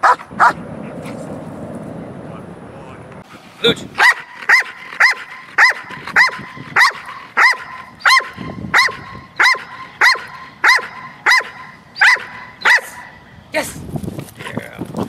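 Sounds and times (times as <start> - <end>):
dog barking: 0.0 - 0.7, 4.0 - 13.2.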